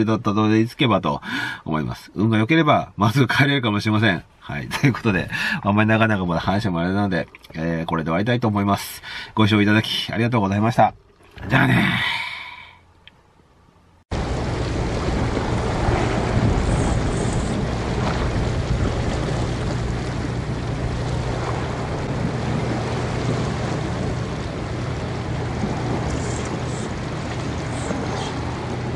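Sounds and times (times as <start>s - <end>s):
steady wind: 0.0s - 28.9s
sea noise: 3.1s - 28.9s
low hum: 10.8s - 28.9s.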